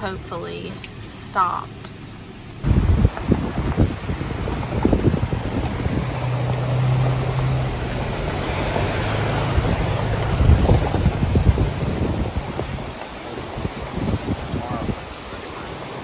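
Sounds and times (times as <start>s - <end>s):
rushing creek water: 2.6s - 16.0s
wind buffeting microphone: 2.6s - 16.0s.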